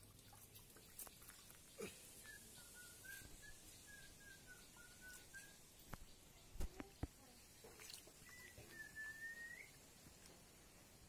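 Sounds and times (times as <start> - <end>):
small bird whistling: 2.2 - 5.6, 8.2 - 9.8.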